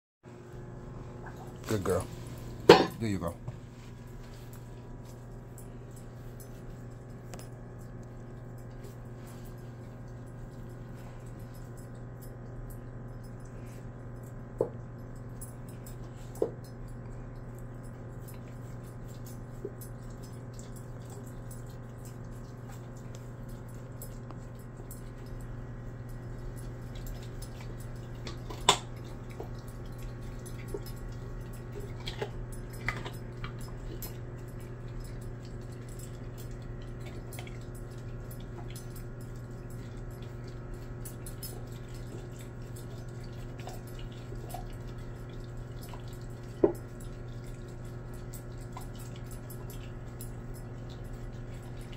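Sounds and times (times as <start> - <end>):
dog licking wet smacking: 17.2 - 51.9.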